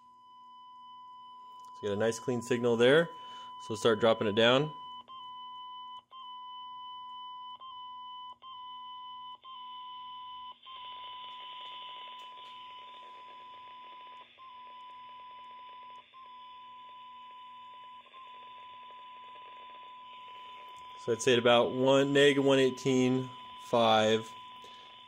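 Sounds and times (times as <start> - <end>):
test tone from radio speaker: 0.0 - 25.0.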